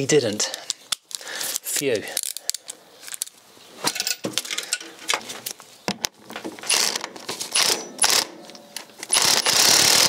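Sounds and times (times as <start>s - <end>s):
loud rasping bursts: 6.6s - 8.3s, 9.0s - 10.0s.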